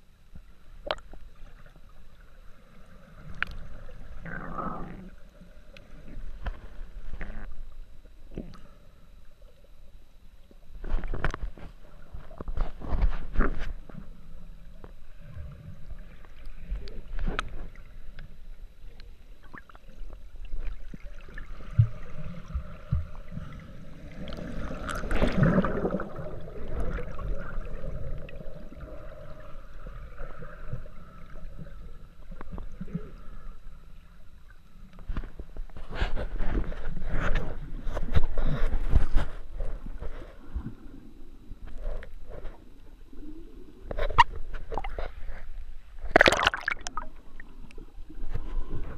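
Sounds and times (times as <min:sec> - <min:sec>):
muffled underwater sloshing: 0:00.0 - 0:48.9
wave churning bubbles over rocks: 0:21.0 - 0:30.2, 0:46.1 - 0:47.5.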